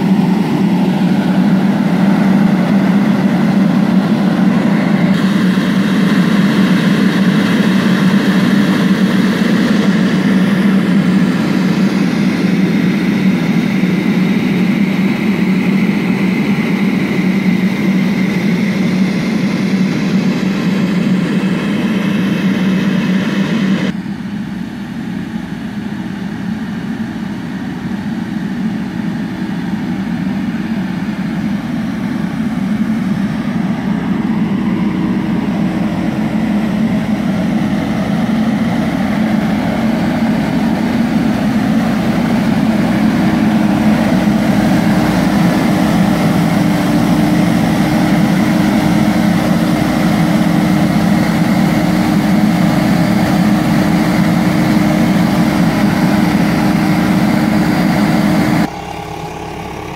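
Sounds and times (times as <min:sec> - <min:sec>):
tractor sprayer droning: 0:00.0 - 0:59.9.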